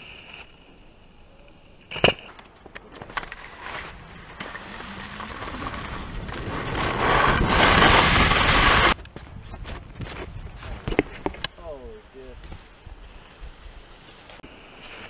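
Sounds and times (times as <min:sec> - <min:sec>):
skis scraping over snow: 0:02.3 - 0:15.0
wind on microphone: 0:03.9 - 0:14.3.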